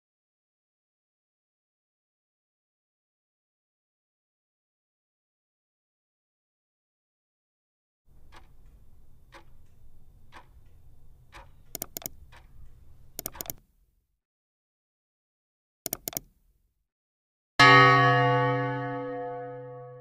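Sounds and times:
soft ticking: 8.1 - 13.7, 15.9 - 16.4
sharp mouse clicks: 8.2 - 13.7, 15.9 - 16.4
loud music chord: 17.6 - 20.0.

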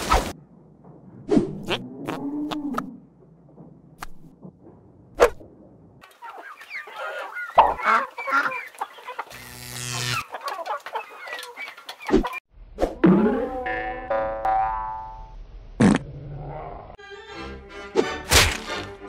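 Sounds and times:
chicken clucking: 6.0 - 9.4, 10.1 - 12.4.

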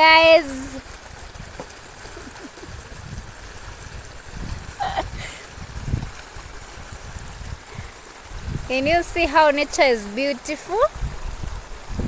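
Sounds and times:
low rumbles: 0.0 - 9.8
water rushing and churning: 0.0 - 12.0.

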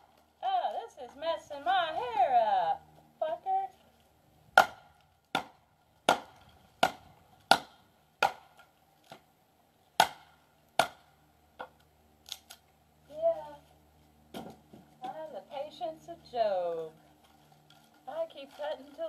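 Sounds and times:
axe chopping wood: 4.6 - 9.3, 10.0 - 11.8, 14.3 - 15.2.

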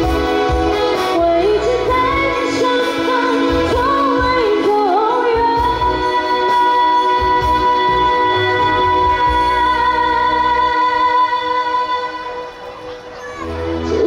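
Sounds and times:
woman singing pop song: 0.0 - 12.8
keyboard: 0.0 - 14.0.

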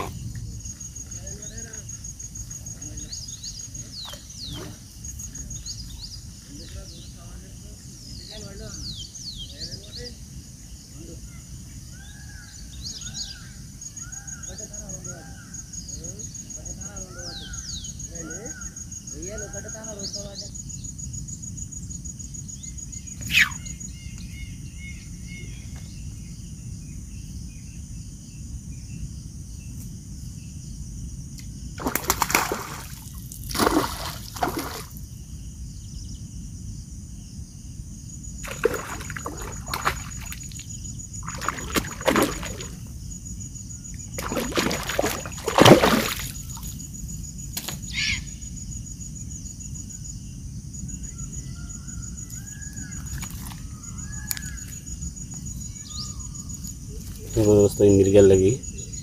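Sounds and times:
crickets droning: 0.0 - 59.0
water splashing: 31.8 - 35.0, 38.4 - 42.9, 44.0 - 46.8.

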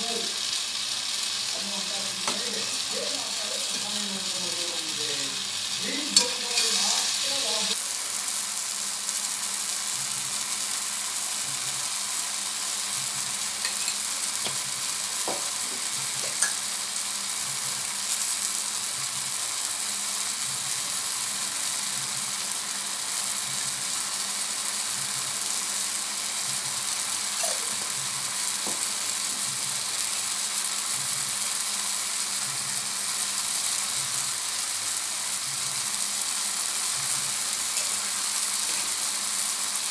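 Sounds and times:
tomatoes sizzling in a pan: 0.0 - 39.9
utensil knocking on pan: 15.2 - 16.6.

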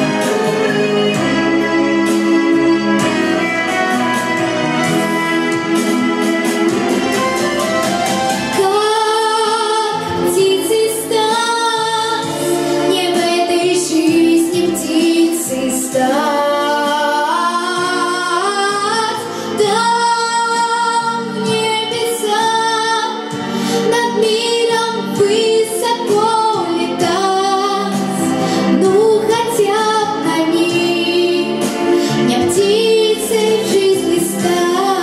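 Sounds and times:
instrumental backing music: 0.0 - 35.0
girl singing into a microphone: 8.6 - 35.0.

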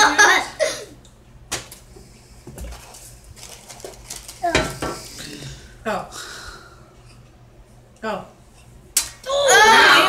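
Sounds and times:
excited exclamations: 9.2 - 10.0.

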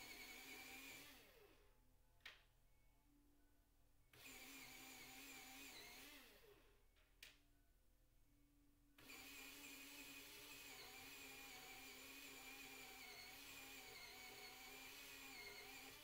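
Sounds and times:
small motor winding down: 0.0 - 1.4, 9.0 - 16.0.

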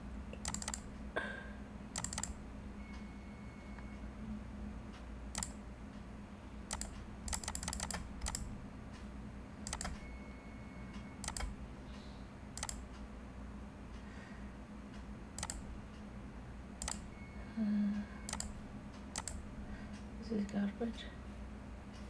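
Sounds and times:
low steady hum: 0.0 - 22.0
keyboard and mouse clicking: 0.3 - 0.9, 2.0 - 2.4, 5.3 - 5.6, 6.7 - 8.5, 9.6 - 10.0, 11.0 - 11.6, 12.6 - 13.0, 15.4 - 15.6, 16.8 - 17.1, 18.3 - 19.4.

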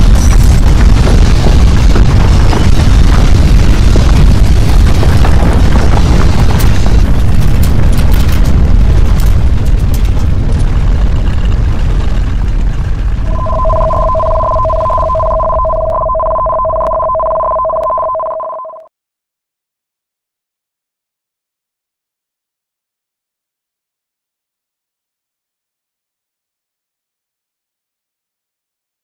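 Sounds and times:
rattles and crackles: 0.0 - 13.3
deep earthquake rumbling: 0.0 - 18.0
two-tone electronic alarm: 13.3 - 18.9.

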